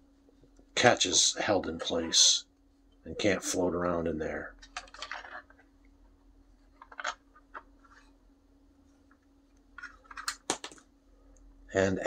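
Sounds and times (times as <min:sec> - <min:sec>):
faint steady hum: 0:00.0 - 0:12.0
plastic parts clicking together: 0:09.8 - 0:10.8.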